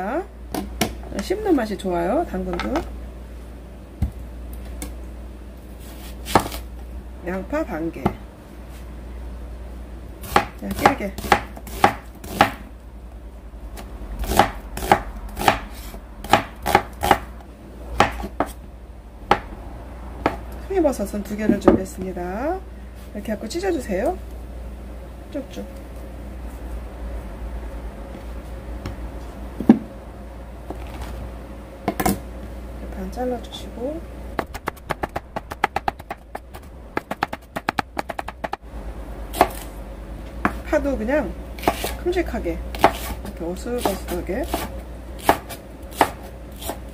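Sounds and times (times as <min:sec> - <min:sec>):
knife slicing vegetables: 0:34.4 - 0:38.6, 0:39.3 - 0:39.7, 0:41.6 - 0:42.0, 0:42.8 - 0:46.9.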